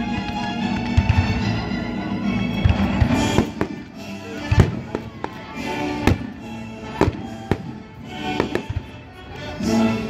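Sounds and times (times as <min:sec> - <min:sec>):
orchestra playing: 0:00.0 - 0:10.0
fireworks bangs: 0:02.6 - 0:06.3.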